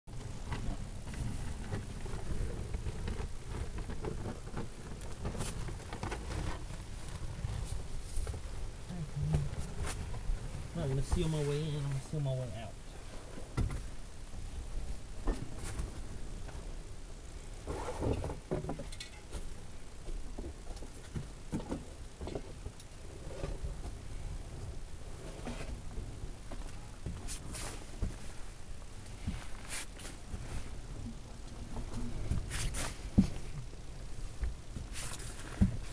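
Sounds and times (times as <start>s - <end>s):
low steady rumble: 0.1s - 35.9s
plastic sheet crinkling and scuffing: 27.2s - 30.8s.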